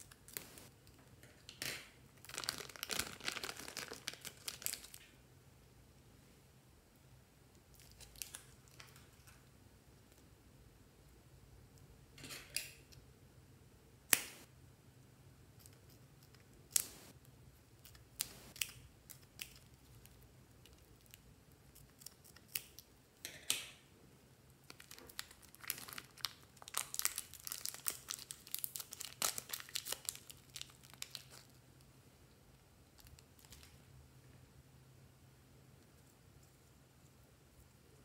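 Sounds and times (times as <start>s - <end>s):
plastic crinkling: 2.2s - 5.0s, 24.7s - 31.6s.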